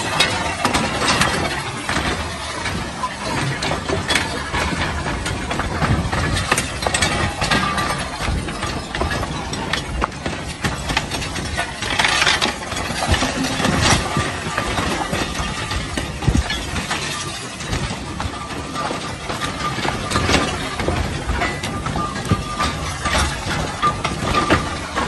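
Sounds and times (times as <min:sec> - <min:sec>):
crackles and clinks: 0:00.0 - 0:25.0
lava flow rumbling: 0:01.1 - 0:18.5.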